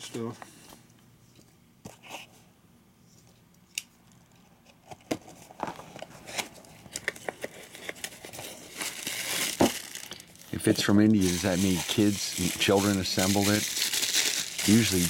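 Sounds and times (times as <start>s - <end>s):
packaging crinkling and tearing: 6.3s - 15.0s.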